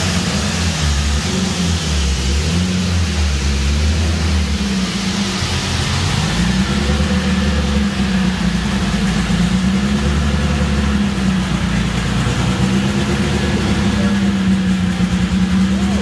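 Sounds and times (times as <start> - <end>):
turbocharged car engine running steadily: 0.0 - 16.0.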